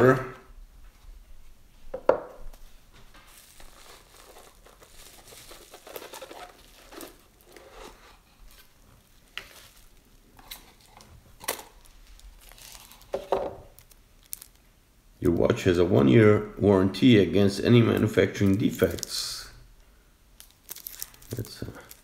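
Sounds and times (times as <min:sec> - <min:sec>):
paper crinkling and rustling: 0:03.0 - 0:14.6, 0:20.6 - 0:22.0.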